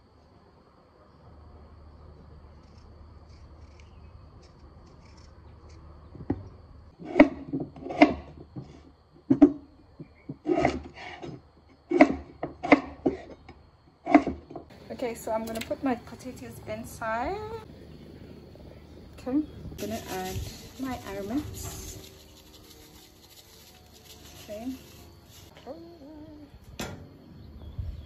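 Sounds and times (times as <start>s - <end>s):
knife scraping potato skin: 2.6s - 5.9s.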